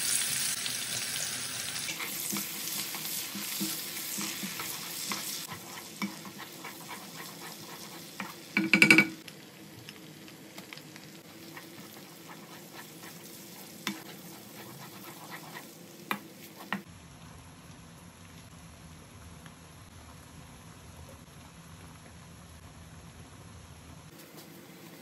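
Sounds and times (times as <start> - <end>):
onions sizzling in oil: 0.0 - 16.9
wooden spoon stirring and scraping: 1.8 - 9.0, 11.2 - 16.9.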